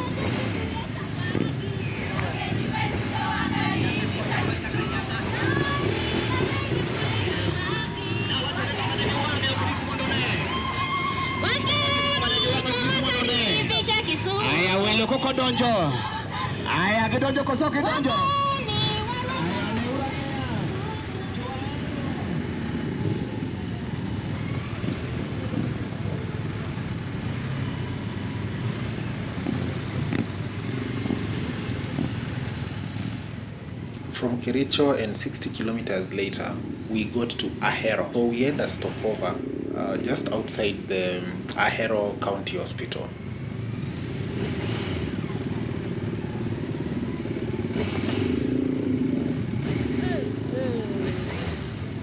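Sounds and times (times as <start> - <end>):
motorcycle engine running: 0.0 - 52.0.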